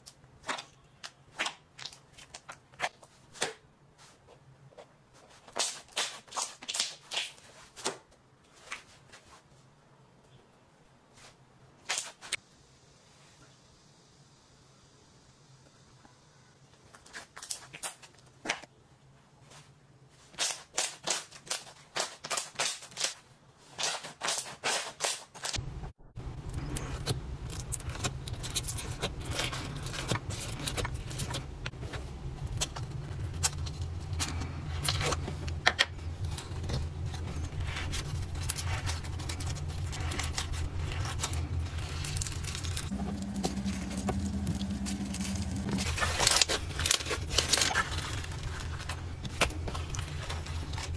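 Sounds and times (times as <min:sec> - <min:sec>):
low steady hum: 0:25.6 - 0:50.9
crunchy slime crackling: 0:26.4 - 0:50.9.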